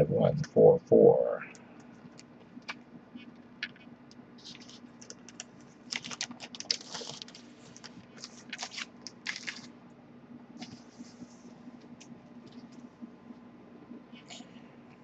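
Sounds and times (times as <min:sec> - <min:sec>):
plastic sleeve clicks and rustling: 0:04.5 - 0:09.7.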